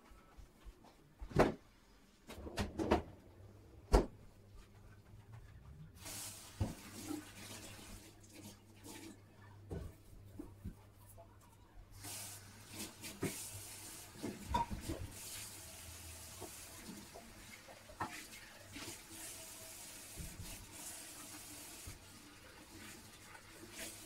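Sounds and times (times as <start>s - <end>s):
tap water running into sink: 6.0s - 9.9s, 12.0s - 24.0s
dishes clinking and knocking: 14.4s - 14.9s.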